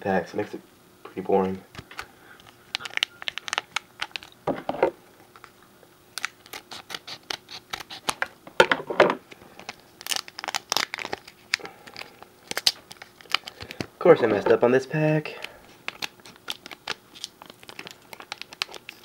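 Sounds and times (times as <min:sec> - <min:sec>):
foil wrapper crinkling and tearing: 0:01.8 - 0:04.4, 0:06.1 - 0:08.2, 0:09.4 - 0:13.9, 0:15.3 - 0:19.0.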